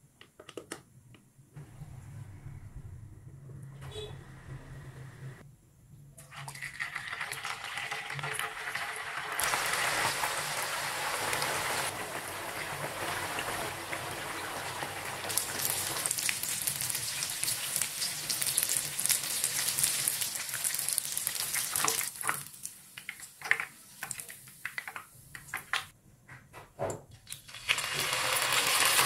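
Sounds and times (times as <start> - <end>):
tofu sizzling in hot oil: 6.6 - 24.8, 27.4 - 29.0.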